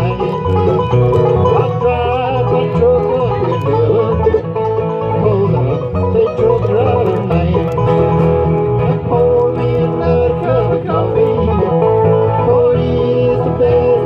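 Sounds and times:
banjo picking: 0.0s - 14.0s
bluegrass band playing: 0.0s - 14.0s.

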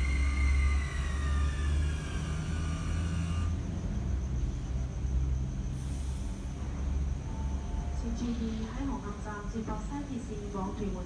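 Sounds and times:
train motor whine: 0.0s - 11.0s
train rolling rumble: 0.0s - 11.0s
short hiss: 5.7s - 6.6s.

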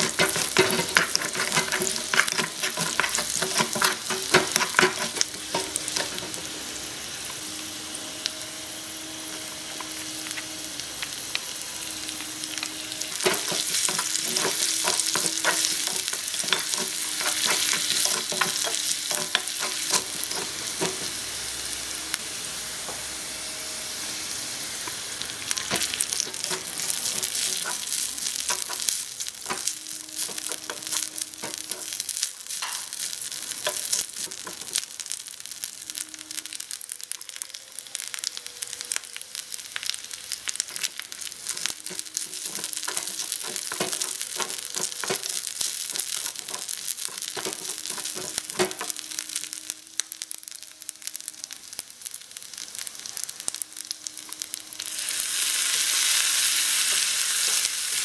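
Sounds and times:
utensils scraping a pan: 0.0s - 6.5s, 13.1s - 21.2s, 25.6s - 32.9s, 41.4s - 48.9s
meat sizzling in a wok: 0.0s - 58.0s.

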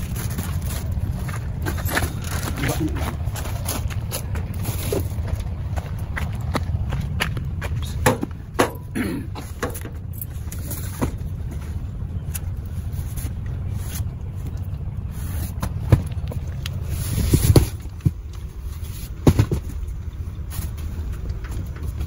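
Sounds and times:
boxes and bottles knocking and scraping: 0.0s - 5.5s, 7.7s - 11.8s, 15.3s - 22.0s
steady low rumble: 0.0s - 22.0s.

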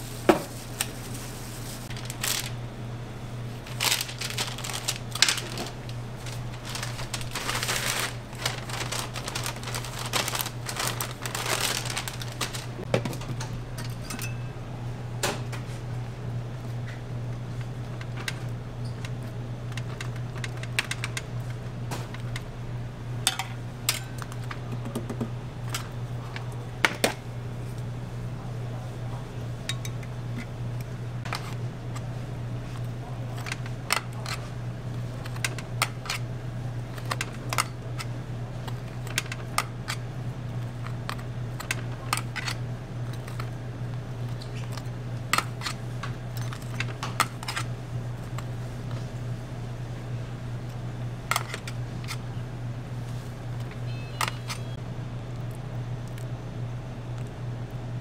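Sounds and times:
low machine hum: 0.0s - 58.0s
utensils clicking and tapping: 17.6s - 22.5s.

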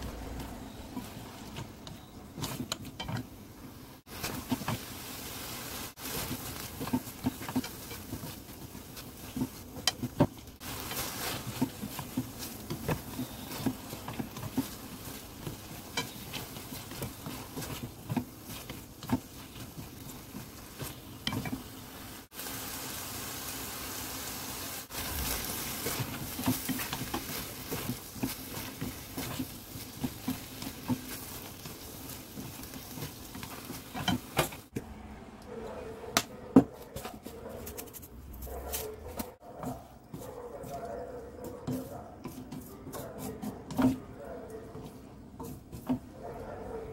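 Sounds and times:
chopsticks and spatula scraping pan: 0.0s - 22.2s, 24.8s - 34.8s, 36.5s - 46.9s
vegetables sizzling in a pan: 0.0s - 34.7s.

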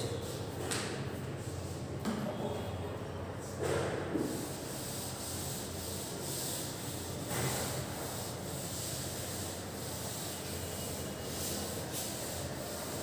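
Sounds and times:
duster rubbing on chalkboard: 4.1s - 13.0s.

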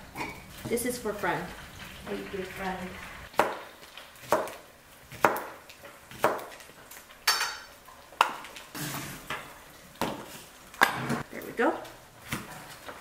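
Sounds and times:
knife chopping on cutting board: 4.2s - 6.6s.

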